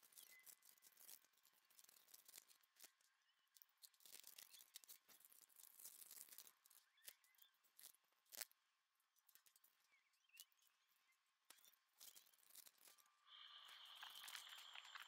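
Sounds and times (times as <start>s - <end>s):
plastic bags crinkling: 0.0s - 8.4s, 12.0s - 15.0s.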